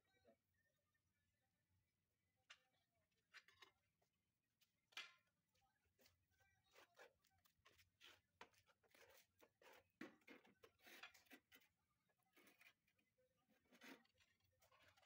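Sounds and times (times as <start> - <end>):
tiles scraping and clicking: 6.0 - 15.0.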